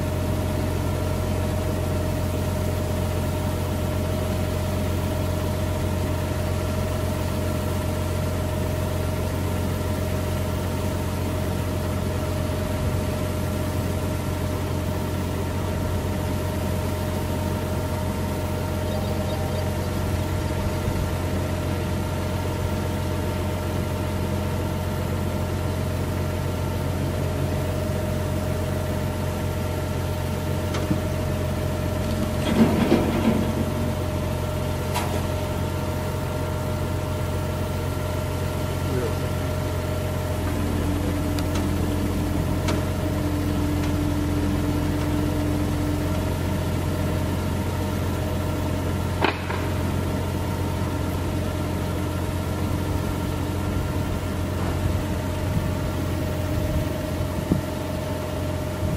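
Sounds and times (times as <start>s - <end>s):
tractor engine running: 0.0s - 58.9s
steady high hum: 16.8s - 22.9s.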